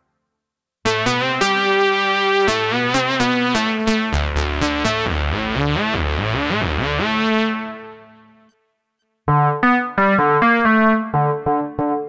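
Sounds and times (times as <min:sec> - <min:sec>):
synthesizer melody short notes: 0:09.3 - 0:12.0.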